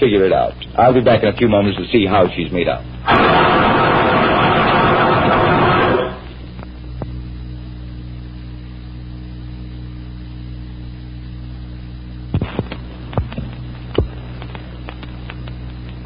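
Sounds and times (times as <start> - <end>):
low electrical hum: 0.0 - 16.0
sharp clicks and pops: 12.3 - 16.0.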